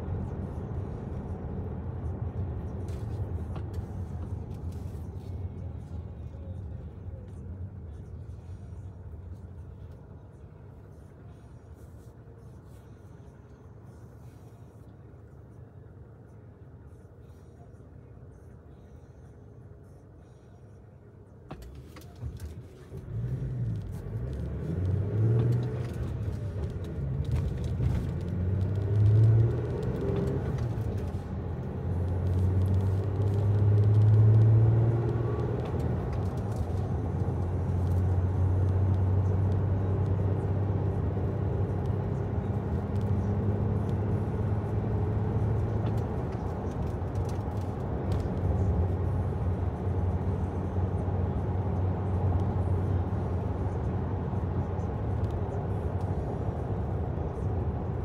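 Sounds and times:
vehicle engine revving: 0:23.0 - 0:58.0.

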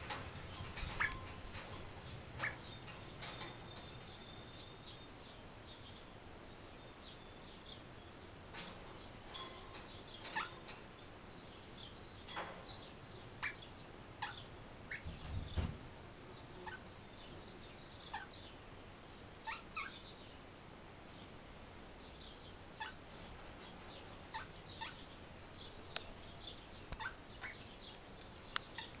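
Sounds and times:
parrot chirping: 0:22.8 - 0:23.0, 0:24.3 - 0:25.0, 0:27.0 - 0:27.6.

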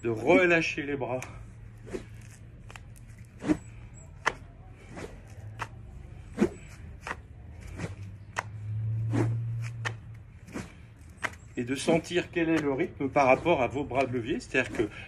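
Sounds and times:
rope swishing: 0:01.7 - 0:13.6.

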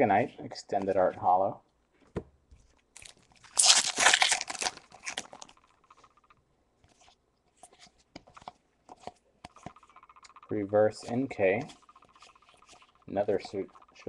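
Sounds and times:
foil pack ripping open: 0:03.0 - 0:05.5.

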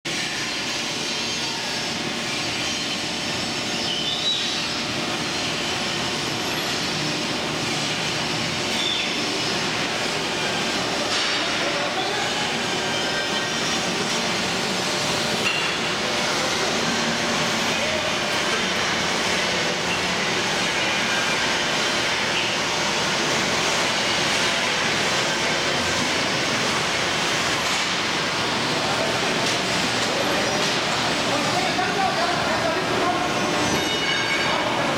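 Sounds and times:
industrial shop floor din: 0:00.0 - 0:34.9
roller conveyors running: 0:00.1 - 0:34.9
brief high squeal: 0:03.7 - 0:04.7, 0:08.7 - 0:09.2.

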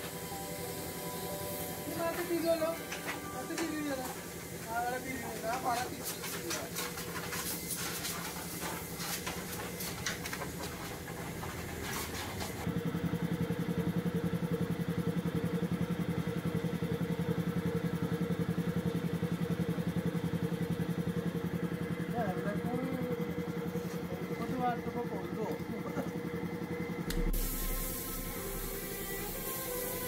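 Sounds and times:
engine idling: 0:08.2 - 0:30.0.

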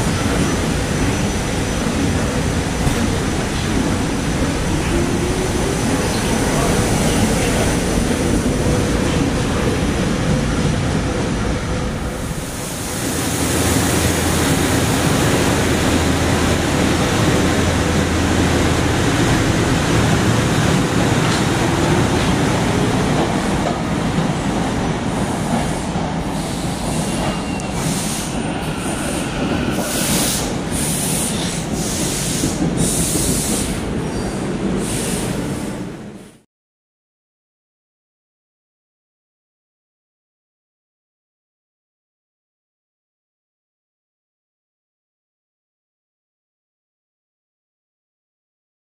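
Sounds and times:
train wheels rumbling on rail: 0:00.0 - 0:36.4.

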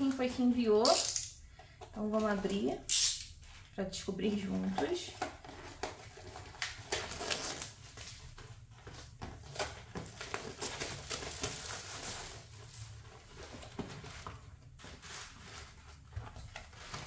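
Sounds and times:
cardboard box rustling and tearing: 0:05.2 - 0:17.0.

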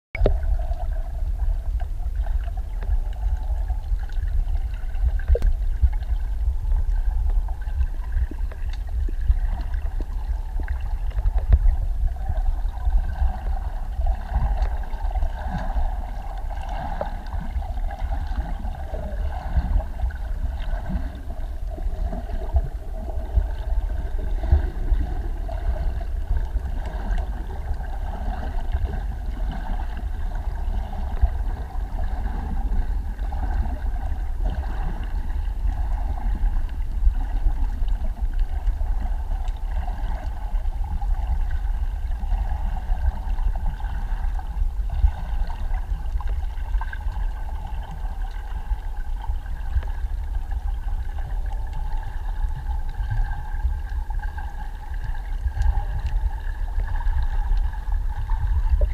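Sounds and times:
muffled underwater rumble: 0:00.1 - 0:58.9
small clicks and crackles: 0:01.8 - 0:11.9, 0:46.1 - 0:58.9.

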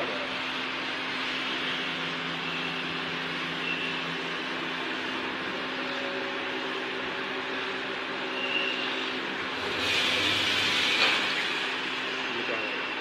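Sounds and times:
laser cutter whirring: 0:00.0 - 0:13.0
loud hiss: 0:08.9 - 0:12.4.

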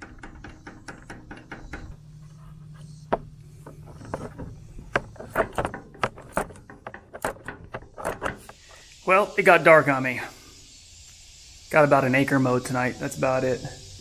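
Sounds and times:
metal clicks of nut tightening: 0:03.6 - 0:08.5.

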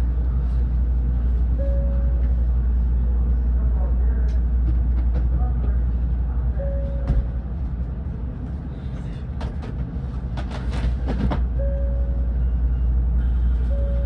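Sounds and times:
train car low rumble and hum: 0:00.0 - 0:14.0.

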